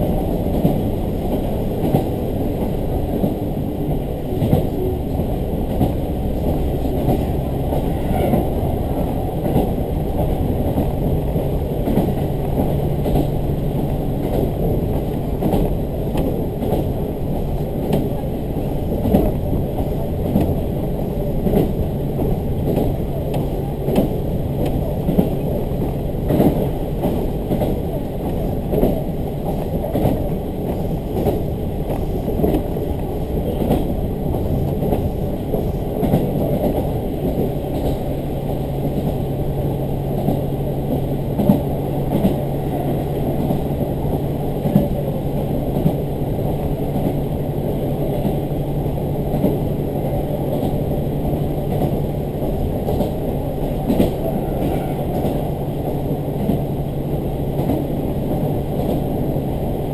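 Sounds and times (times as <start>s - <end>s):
railcar wheels rumbling on rail: 0.0s - 59.9s.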